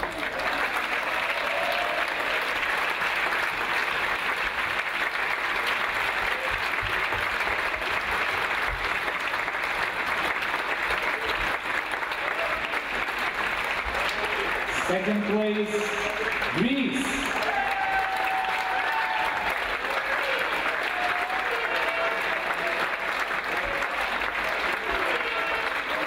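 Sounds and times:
audience applause in a hall: 0.0 - 26.0.

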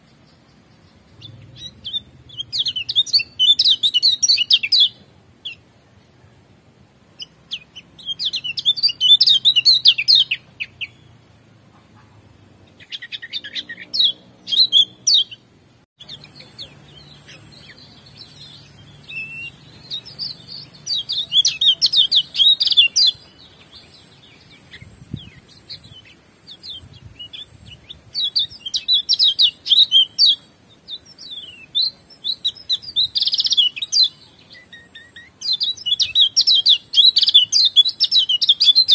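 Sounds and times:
bird twittering song: 0.0 - 6.5, 7.1 - 38.9.

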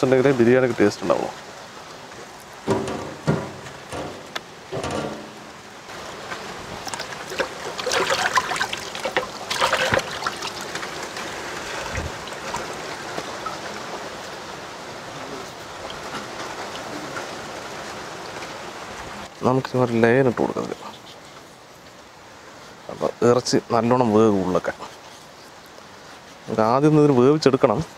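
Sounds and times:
water splashing and dripping: 0.0 - 19.3.

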